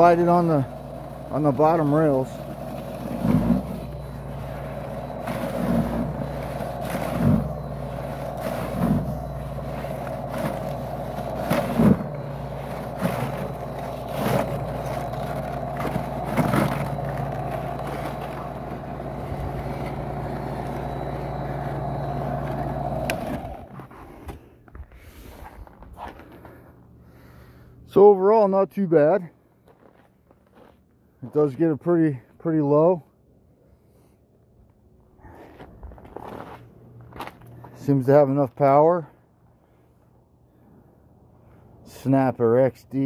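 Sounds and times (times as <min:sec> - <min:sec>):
snow broom motor humming: 0:00.0 - 0:24.4.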